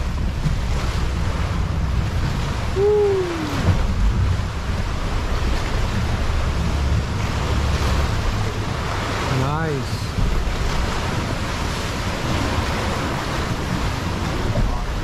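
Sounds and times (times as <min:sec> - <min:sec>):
water sloshing around a boat: 0:00.0 - 0:15.0
wind buffeting microphone: 0:00.0 - 0:15.0
short vocal hoot: 0:02.8 - 0:03.7.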